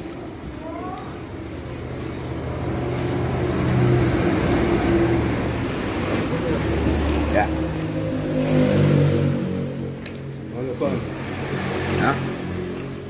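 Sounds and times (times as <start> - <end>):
vehicle engine humming: 1.3 - 13.0.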